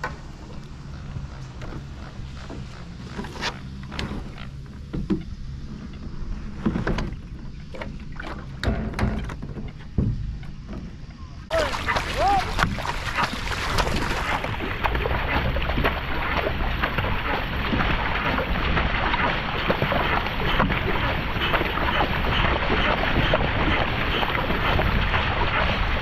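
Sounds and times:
water rushing along hull: 0.0s - 26.0s
paddle blades splashing: 0.2s - 26.0s
wind buffeting microphone: 11.5s - 26.0s.

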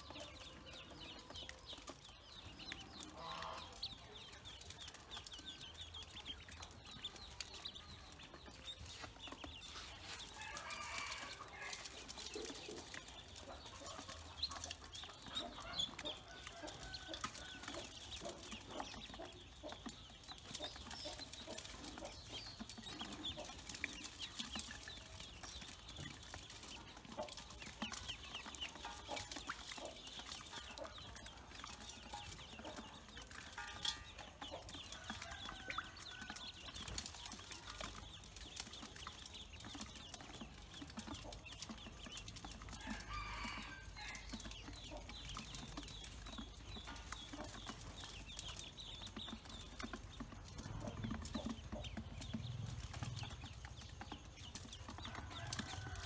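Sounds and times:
ducklings peeping: 0.0s - 56.0s.

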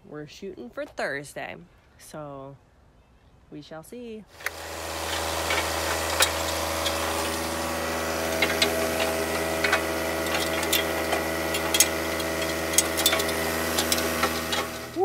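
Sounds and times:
diesel tractor idling: 4.4s - 15.0s.

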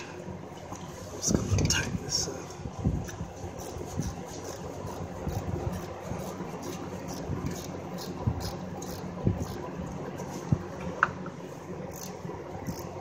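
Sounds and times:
steady background hum: 0.0s - 13.0s
ratchet clicking: 4.4s - 9.6s, 11.9s - 13.0s.

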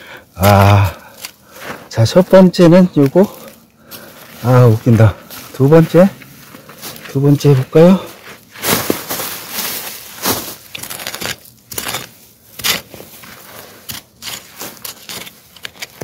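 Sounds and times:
soil clods scattering: 6.6s - 16.0s
hand hoe chopping into soil: 10.3s - 16.0s.

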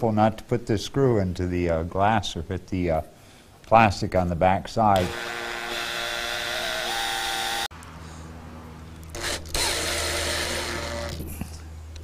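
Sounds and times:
cordless drill motor whining: 5.0s - 7.7s, 9.1s - 11.3s.

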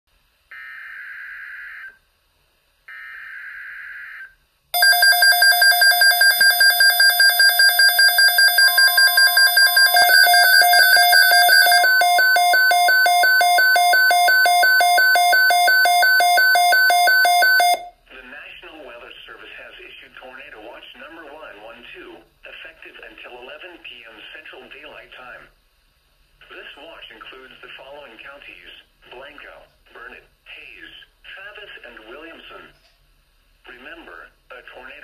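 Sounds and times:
screeching data bursts: 4.8s - 17.4s
rapid electronic alarm beeping: 4.8s - 17.9s.

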